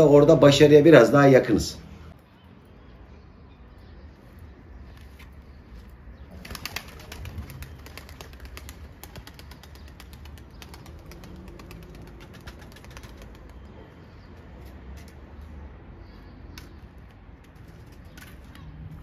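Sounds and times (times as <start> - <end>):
pigeon wings flapping: 6.3 - 13.7.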